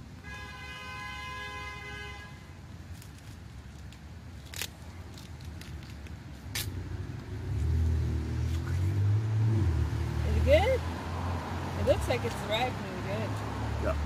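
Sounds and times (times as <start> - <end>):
car horn: 0.2 - 2.5
watermelon cracking: 2.8 - 6.8.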